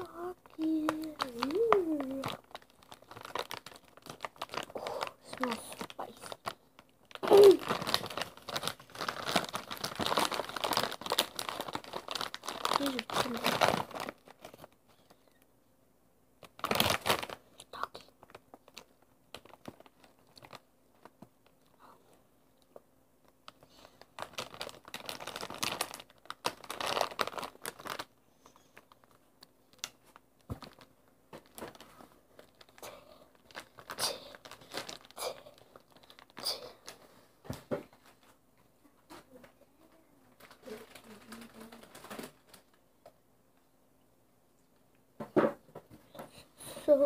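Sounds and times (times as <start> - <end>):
foil chip bag crinkling: 0.1 - 15.2, 16.4 - 22.0, 23.3 - 37.1, 40.4 - 42.8
hand rummaging in chip bag: 0.5 - 14.7, 24.2 - 28.1.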